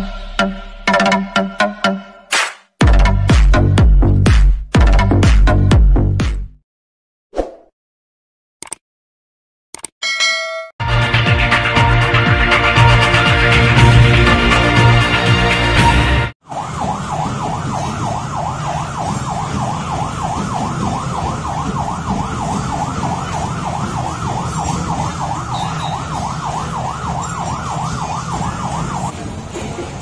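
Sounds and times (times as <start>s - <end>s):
siren yelping: 16.4s - 29.2s.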